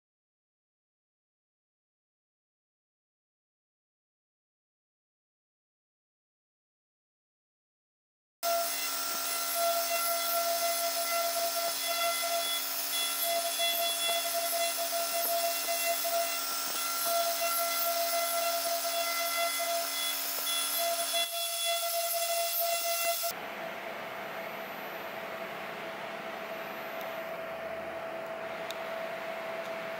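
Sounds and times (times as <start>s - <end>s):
router spindle whining: 8.5s - 23.3s.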